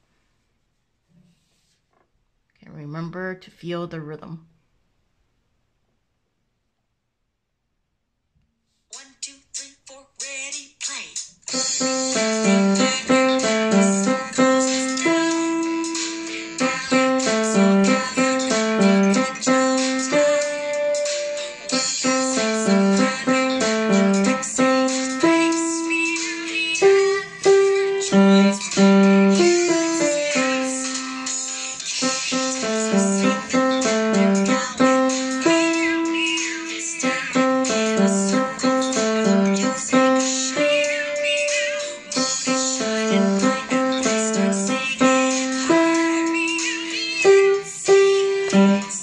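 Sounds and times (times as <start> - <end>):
simple piano melody: 11.6 - 49.0.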